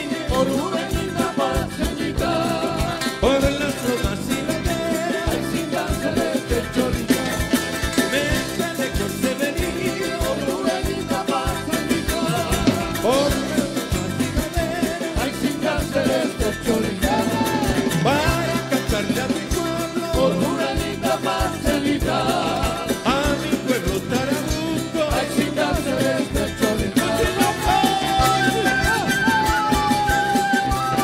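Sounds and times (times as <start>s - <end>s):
live band playing latin dance music: 0.0s - 31.0s.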